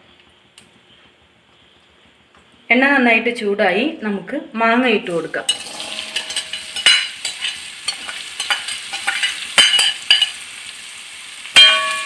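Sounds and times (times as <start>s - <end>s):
mango pieces sizzling in hot oil: 5.0s - 12.0s
sharp ringing clank: 5.5s - 7.2s, 11.6s - 12.0s
steel spatula scraping a pan: 5.5s - 10.4s.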